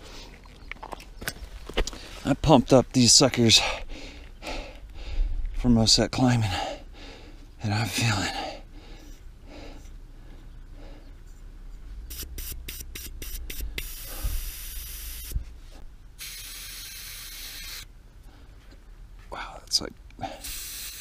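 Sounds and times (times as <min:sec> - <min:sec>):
air hissing from tyre valve: 0:12.1 - 0:15.5, 0:16.2 - 0:17.9, 0:20.2 - 0:21.0.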